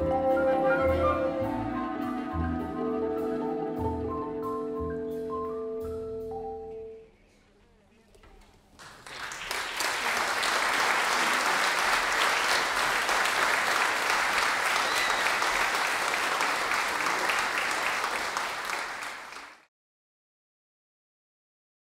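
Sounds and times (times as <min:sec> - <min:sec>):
audience applauding: 0:08.8 - 0:19.7.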